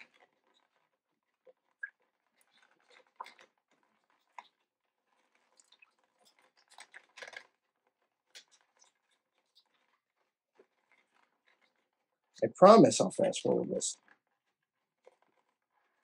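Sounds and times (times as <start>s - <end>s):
plastic bag crinkling: 2.1s - 11.8s.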